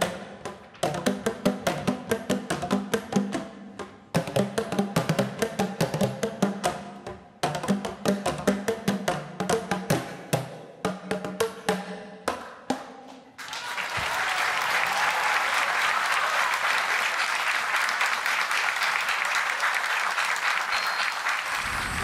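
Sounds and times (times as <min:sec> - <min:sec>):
audience applause: 0:13.4 - 0:22.0.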